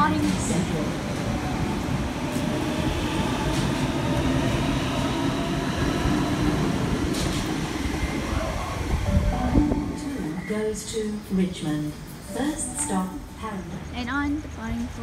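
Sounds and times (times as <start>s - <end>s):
electric train rolling rumble: 0.0s - 15.0s.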